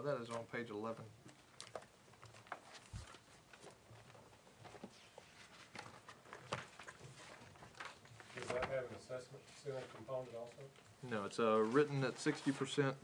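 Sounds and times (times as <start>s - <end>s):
paper pages turning: 1.4s - 9.0s, 11.6s - 13.0s.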